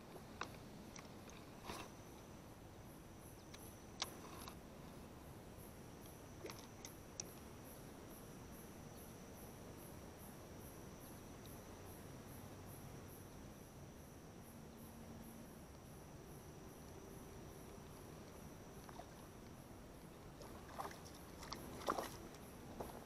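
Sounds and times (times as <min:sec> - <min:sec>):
insects trilling: 0:00.0 - 0:23.0
insect pulsing chirp: 0:05.2 - 0:23.0.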